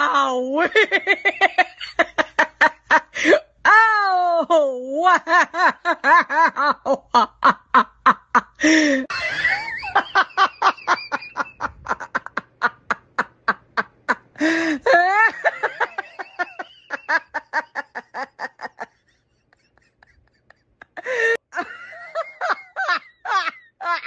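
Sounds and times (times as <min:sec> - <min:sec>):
woman cackling laughter: 0:05.2 - 0:24.0.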